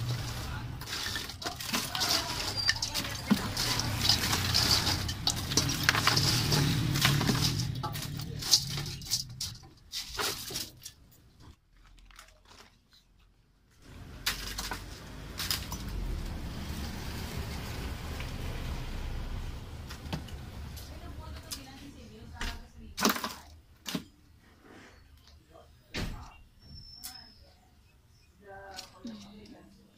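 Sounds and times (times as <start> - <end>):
ice cubes clattering and clinking: 0.0 - 11.0.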